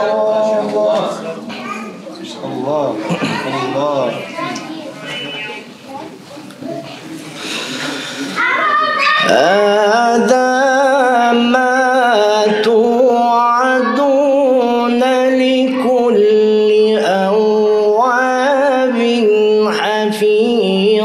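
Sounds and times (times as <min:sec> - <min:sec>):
man chanting melodically: 0:00.0 - 0:01.3, 0:09.2 - 0:21.0.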